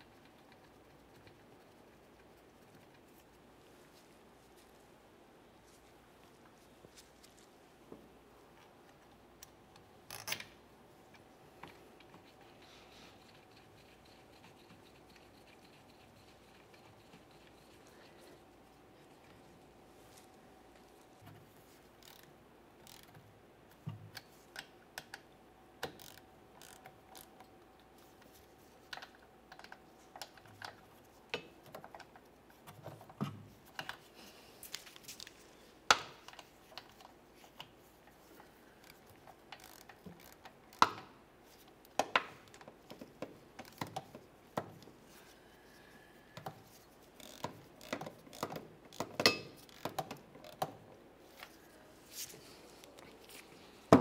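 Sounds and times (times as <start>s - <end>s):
ratchet and torque wrench clicking: 22.0s - 23.2s, 25.8s - 27.3s, 38.8s - 40.9s, 47.2s - 50.6s.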